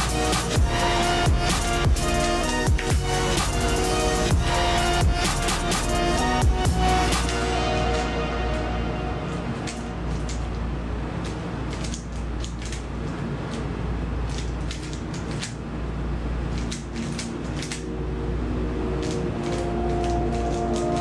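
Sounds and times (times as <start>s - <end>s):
steady low hum: 0.0s - 21.0s
puzzle cube plastic clicks: 11.2s - 12.9s, 14.3s - 15.6s, 16.6s - 17.9s, 19.0s - 21.0s.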